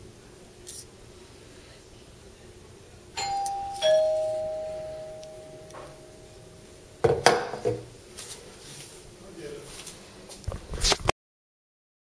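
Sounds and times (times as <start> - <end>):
doorbell ding-dong chime: 3.2 - 7.0.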